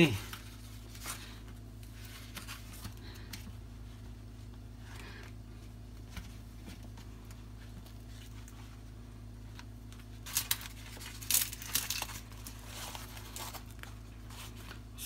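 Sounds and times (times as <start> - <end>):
leaf rustling and crinkling: 10.0 - 14.9.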